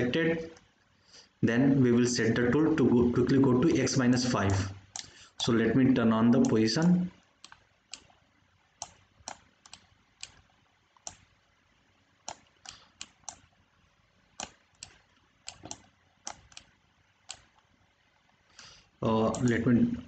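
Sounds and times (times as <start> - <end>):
computer mouse and key clicks: 4.4 - 5.2, 7.2 - 8.2, 8.8 - 11.4, 12.2 - 13.6, 14.3 - 18.4, 19.3 - 19.6.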